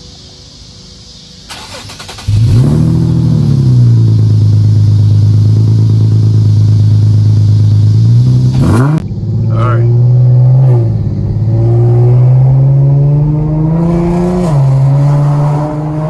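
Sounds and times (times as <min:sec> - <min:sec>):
car engine idling: 0:00.0 - 0:14.0
car engine starter cranking: 0:01.5 - 0:02.8.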